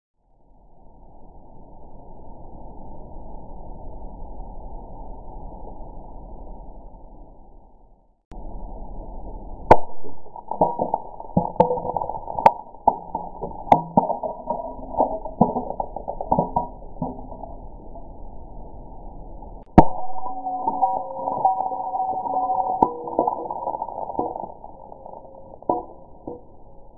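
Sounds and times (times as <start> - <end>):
glass jar smashing on concrete: 10.2 - 17.5, 19.8 - 26.5.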